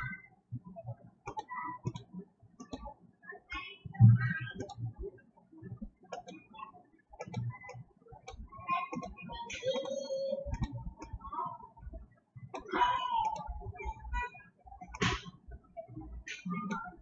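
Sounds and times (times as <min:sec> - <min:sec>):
computer mouse clicking: 0:01.2 - 0:02.9, 0:04.5 - 0:04.8, 0:06.1 - 0:06.5, 0:07.2 - 0:11.2, 0:16.2 - 0:17.0.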